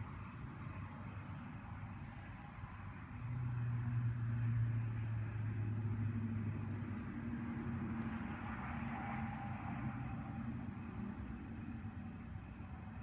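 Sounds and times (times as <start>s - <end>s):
exhaust drone: 0.0s - 13.0s
vehicle passing: 3.2s - 12.2s.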